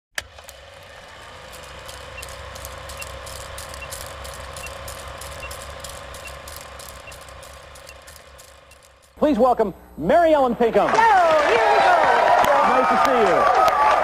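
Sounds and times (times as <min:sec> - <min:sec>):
low hum: 0:00.2 - 0:10.6
sharp click: 0:01.5 - 0:09.2.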